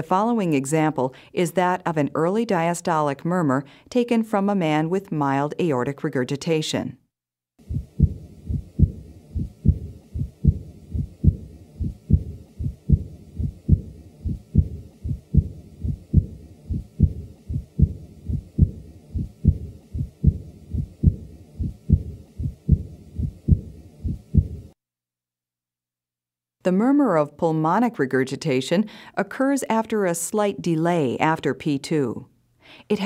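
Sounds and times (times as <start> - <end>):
early diastolic heart murmur: 7.6 - 24.8
heartbeat: 7.6 - 24.8.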